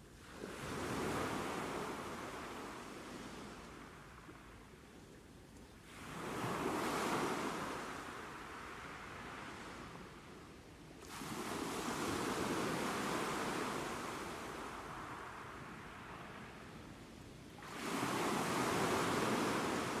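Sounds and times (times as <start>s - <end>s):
sea waves washing ashore: 5.9s - 10.3s, 11.0s - 20.0s.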